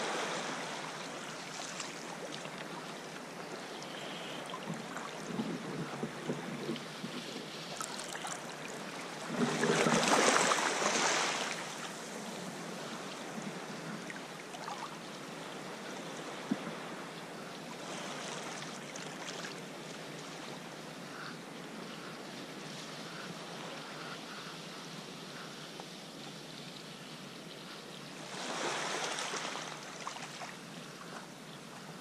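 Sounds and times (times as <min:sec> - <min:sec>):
rush of splashing water: 0:00.0 - 0:15.0, 0:17.8 - 0:20.4, 0:28.2 - 0:30.8
water lapping against rocks: 0:07.7 - 0:11.6.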